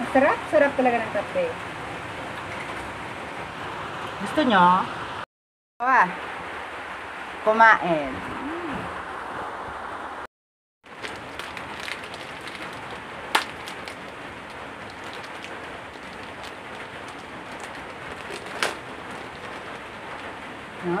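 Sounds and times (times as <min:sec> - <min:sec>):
plastic wrapper crinkling: 0:10.9 - 0:20.3
rain falling: 0:10.9 - 0:21.0.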